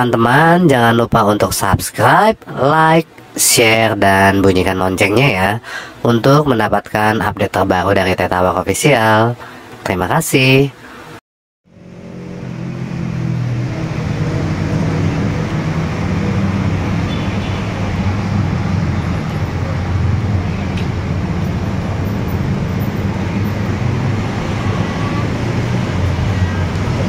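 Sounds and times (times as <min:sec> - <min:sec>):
road traffic rumble: 0:10.8 - 0:27.0.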